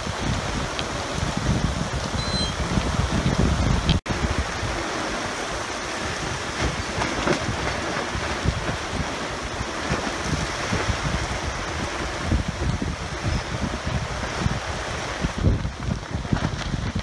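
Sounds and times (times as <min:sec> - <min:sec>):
wind and sea hissing: 0:00.0 - 0:17.0
wind buffeting microphone: 0:00.0 - 0:17.0.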